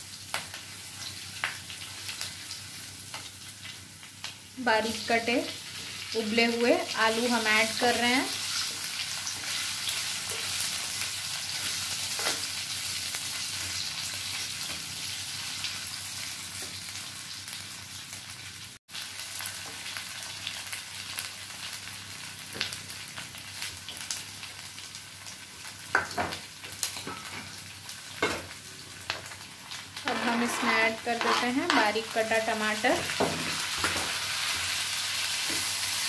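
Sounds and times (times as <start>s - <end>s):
potatoes sizzling in hot fat: 0.0s - 36.0s
wooden spatula scraping pan: 30.0s - 31.9s.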